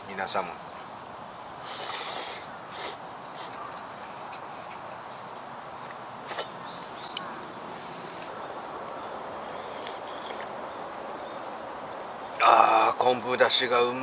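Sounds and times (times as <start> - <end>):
steady background hiss: 0.0 - 14.0
person slurping broth: 9.4 - 10.5.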